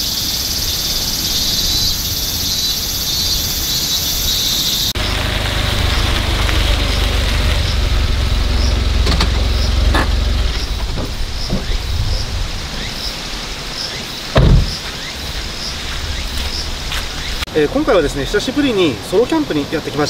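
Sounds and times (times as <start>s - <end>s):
tyres crackling on gravel: 3.1s - 20.0s
van engine rumbling: 3.6s - 13.6s
loud thump: 9.0s - 12.2s, 14.3s - 14.8s.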